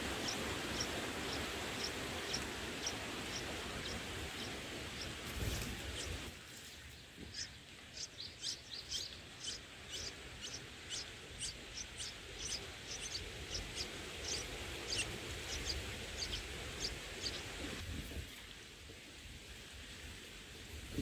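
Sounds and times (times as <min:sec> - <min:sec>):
faint outdoor background hiss: 0:00.0 - 0:21.0
nestlings chirping high and thin: 0:00.2 - 0:06.2, 0:07.3 - 0:17.5.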